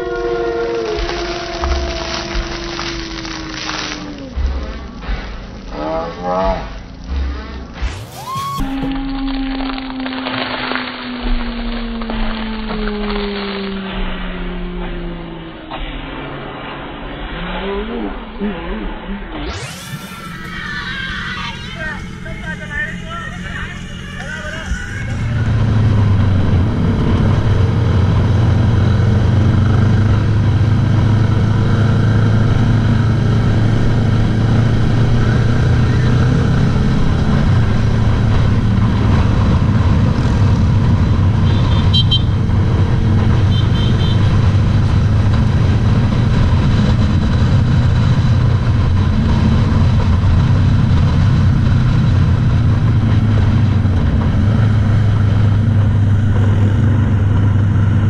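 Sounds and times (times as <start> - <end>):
passing traffic: 0.0 - 58.0
road noise: 0.0 - 58.0
motorcycle engine cruising: 19.5 - 58.0.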